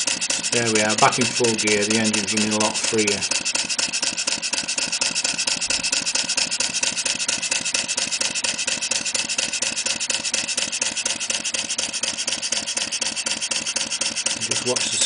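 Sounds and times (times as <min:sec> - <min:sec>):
model steam engine exhaust beats: 0:00.0 - 0:15.0.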